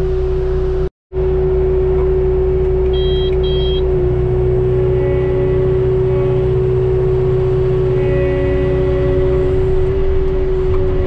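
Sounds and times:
constant whine: 0.0s - 11.0s
tractor engine running: 0.0s - 11.0s
short high beeps: 2.9s - 3.9s.

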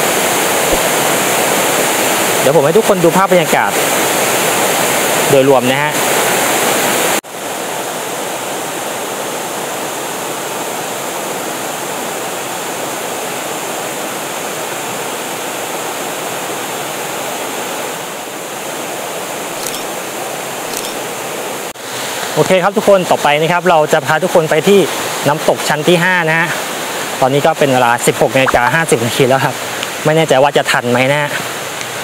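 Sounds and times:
waterfall rushing: 0.0s - 32.0s.

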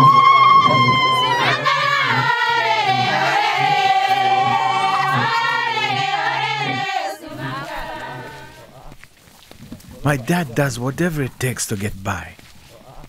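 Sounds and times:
group of voices singing: 0.0s - 9.0s.

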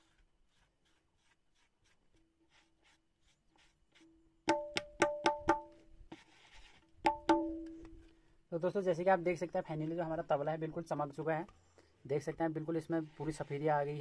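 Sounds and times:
cloth rubbing drum head: 0.0s - 7.9s
ringing tabla strokes: 4.0s - 5.8s, 7.0s - 7.9s.

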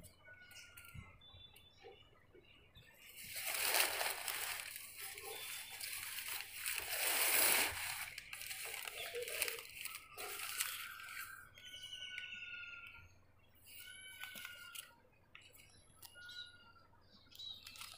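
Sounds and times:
paper packing rustling and crinkling: 3.1s - 11.4s.

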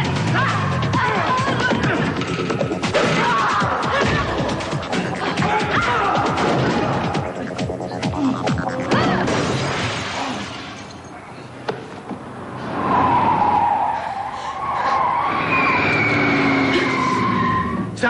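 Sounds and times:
car tyres squealing: 12.3s - 18.0s.

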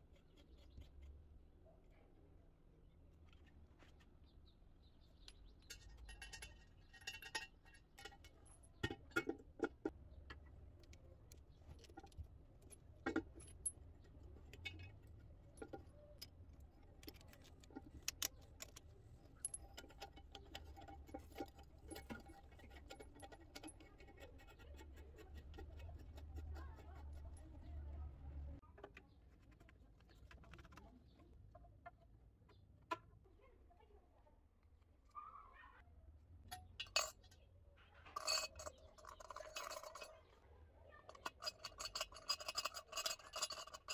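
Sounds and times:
metallic clinks and rattles of tap: 5.2s - 24.4s.

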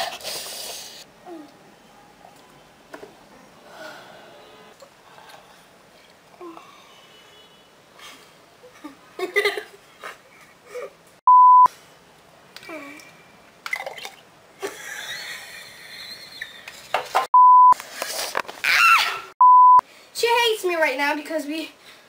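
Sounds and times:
censor bleeps: 11.3s - 11.7s, 17.4s - 17.8s, 19.4s - 19.8s
high-pitched cry: 18.6s - 19.3s.

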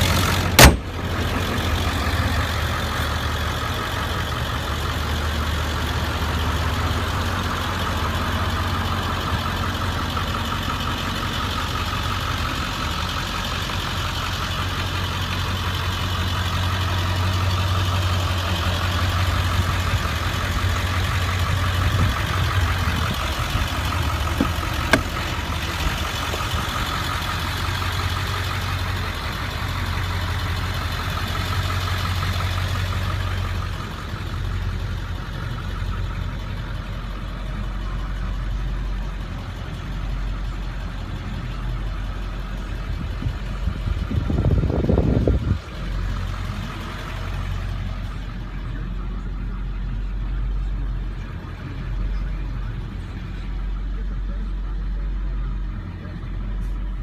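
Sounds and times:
diesel engine idling: 0.0s - 57.0s
loud thump: 0.5s - 1.0s, 24.4s - 25.4s.

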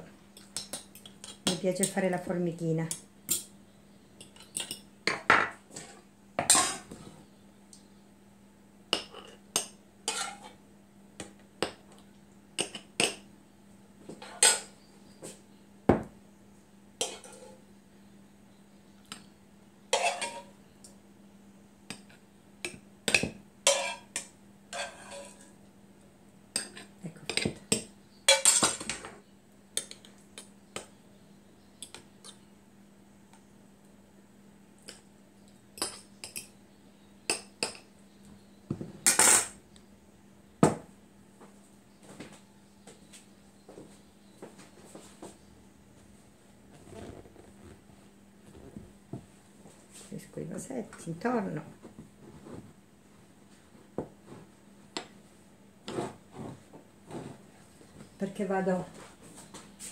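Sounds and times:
faint low hum: 0.0s - 59.9s
metal utensils clinking on pan and jars: 6.4s - 6.9s, 9.0s - 10.5s, 19.9s - 20.5s, 23.1s - 25.5s, 28.3s - 29.0s.

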